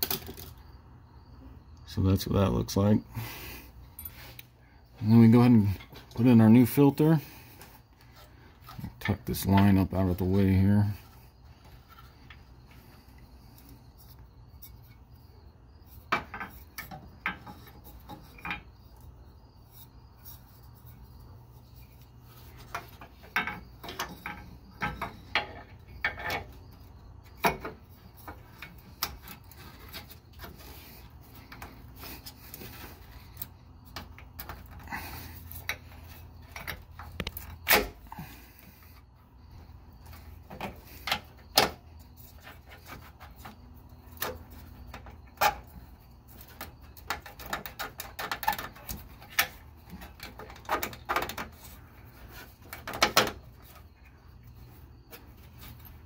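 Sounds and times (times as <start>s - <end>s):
metal and plastic handling clicks: 36.6s - 38.0s.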